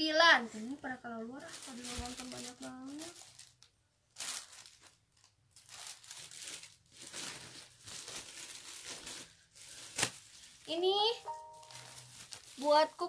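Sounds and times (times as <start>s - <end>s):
fabric rustling: 1.4s - 13.0s.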